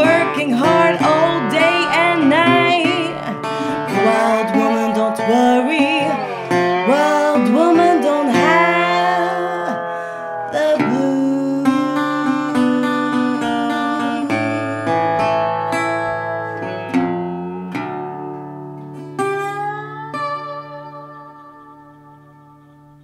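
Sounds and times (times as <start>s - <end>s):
woman singing: 0.0s - 15.8s
slide resonator guitar: 0.0s - 23.0s.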